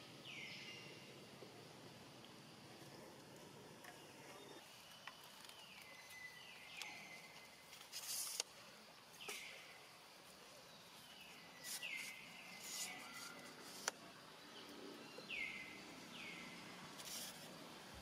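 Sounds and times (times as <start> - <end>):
high hissy animal calls: 10.8 - 17.8.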